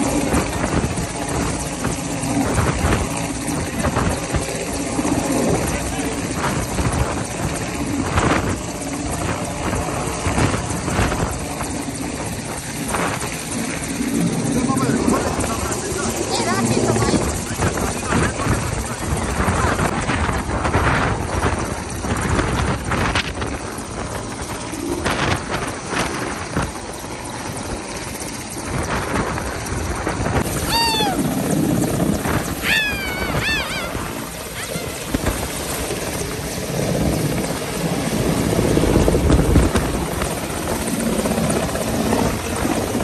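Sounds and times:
helicopter engine and rotor: 0.0s - 43.0s
rotor wash buffeting microphone: 0.0s - 43.0s.

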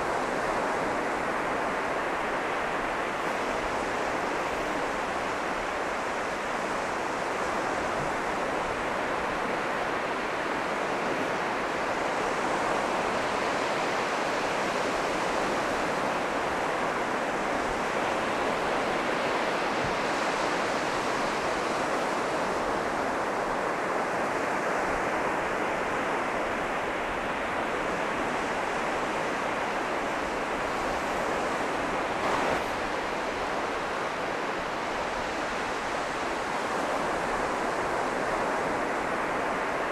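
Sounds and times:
wind: 0.0s - 39.9s
surf breaking on beach: 14.9s - 39.9s.

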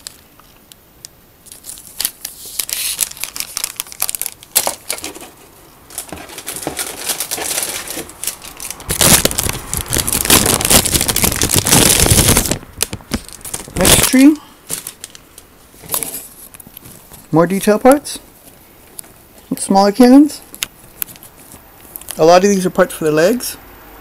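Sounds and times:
plastic bag crinkling: 0.0s - 0.6s, 1.4s - 17.3s.

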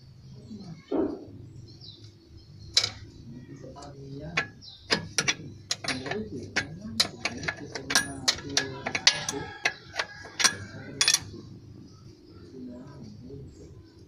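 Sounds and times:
metal wrench clicking on nuts: 4.4s - 11.3s.

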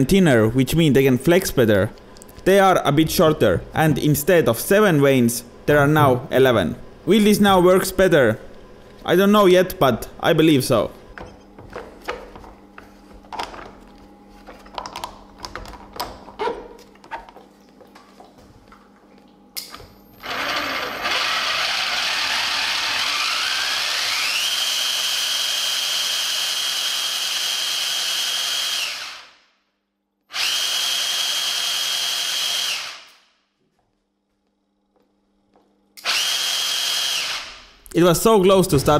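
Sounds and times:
water pump motor whine: 16.9s - 29.2s.

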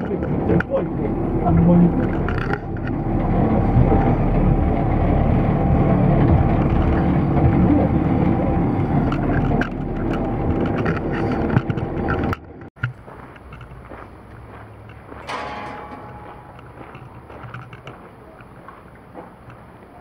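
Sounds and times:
monorail car mechanical drone: 0.0s - 20.0s.

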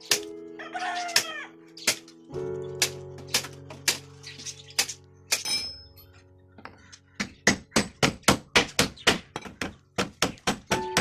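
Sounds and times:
hammer striking nails into wood: 7.2s - 11.0s.

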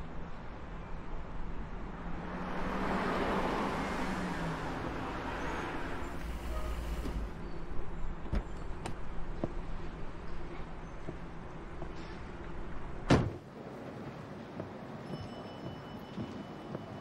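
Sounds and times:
street traffic noise: 0.0s - 17.0s
car going by: 1.9s - 7.4s.

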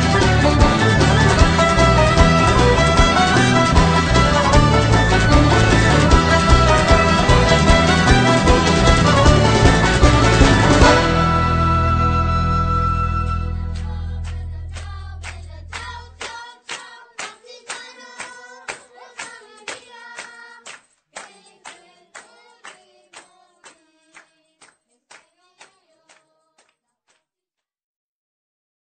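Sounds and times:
melody of short sharp notes: 0.0s - 13.8s
held chord: 0.0s - 14.0s.

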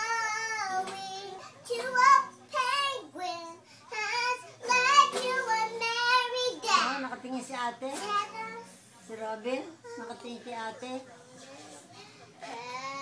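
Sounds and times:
girl singing: 0.0s - 6.9s.

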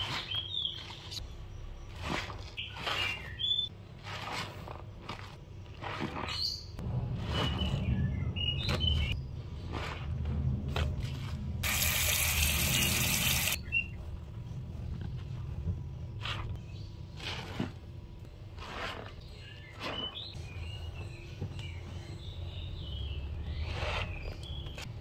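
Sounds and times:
sponge squelching in soapy water: 0.0s - 1.2s, 1.8s - 7.9s, 16.2s - 20.4s.

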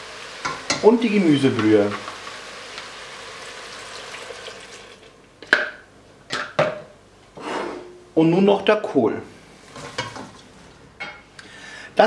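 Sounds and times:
broth hissing and sizzling in pot: 0.0s - 5.1s.

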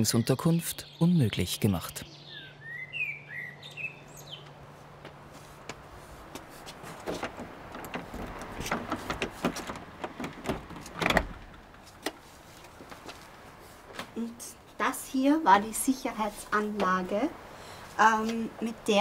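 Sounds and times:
door clacking open: 6.8s - 12.2s
door lock clicks and rattles: 7.0s - 12.2s.

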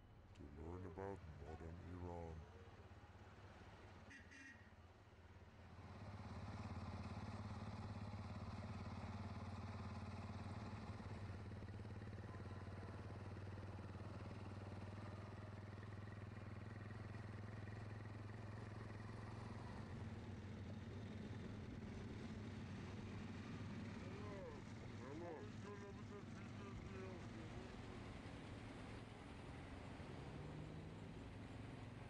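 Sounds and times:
distant city traffic rumble: 0.0s - 32.0s.

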